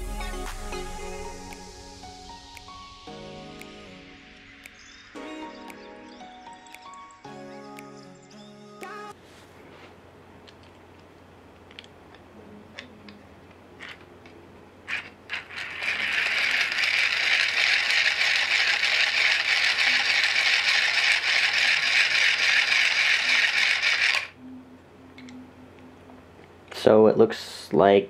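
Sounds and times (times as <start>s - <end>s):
gears whirring: 14.9s - 24.4s.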